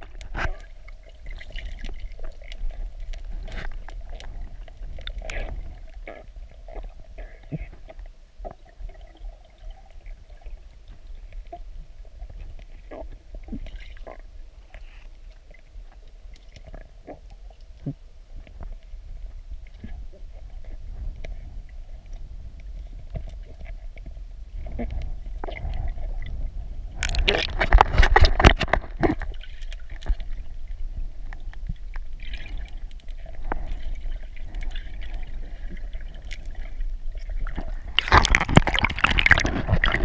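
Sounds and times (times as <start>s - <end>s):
underwater rumble of water: 0.0s - 40.0s
churning bubbling water: 24.6s - 30.5s, 32.0s - 40.0s.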